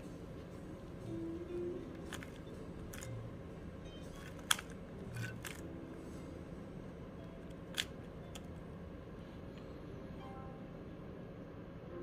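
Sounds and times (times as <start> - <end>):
plastic puzzle cube clicks: 4.2 - 5.6, 7.6 - 8.5.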